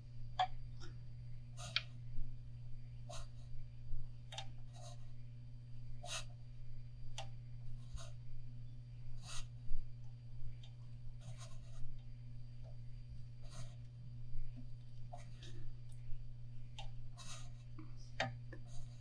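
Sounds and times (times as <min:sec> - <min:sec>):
steady low hum: 0:00.0 - 0:19.0
fingers scratching wrapping thread: 0:09.2 - 0:09.6, 0:11.1 - 0:12.0, 0:16.8 - 0:17.9.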